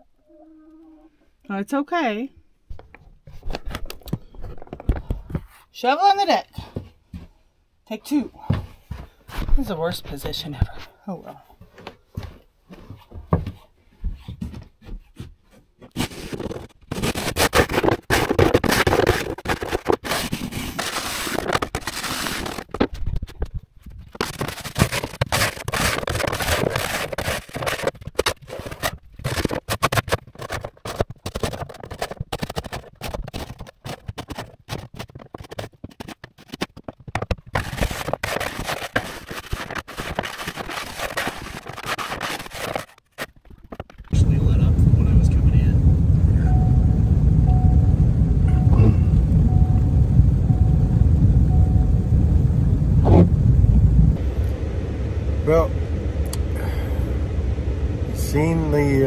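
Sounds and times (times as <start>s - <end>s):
snow shovel scraping wooden deck: 15.8s - 22.8s, 24.2s - 31.0s.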